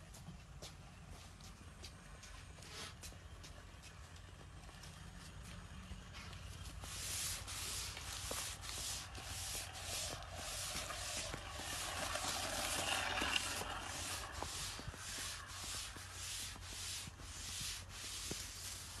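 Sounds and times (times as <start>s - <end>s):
hand rubbing taut string: 6.7s - 19.0s.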